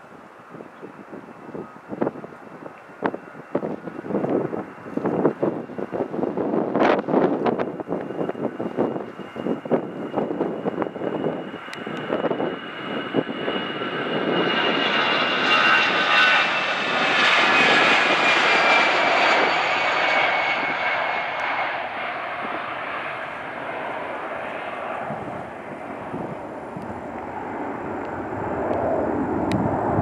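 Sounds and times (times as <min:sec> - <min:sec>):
jet airliner taking off: 0:00.1 - 0:30.0.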